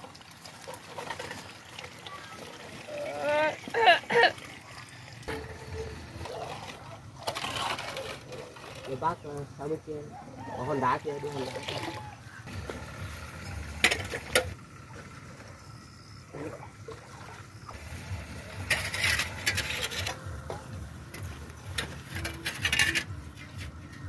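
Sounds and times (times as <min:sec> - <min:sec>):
rustling scrapes: 0:05.3 - 0:09.2, 0:17.8 - 0:20.5, 0:21.2 - 0:24.0.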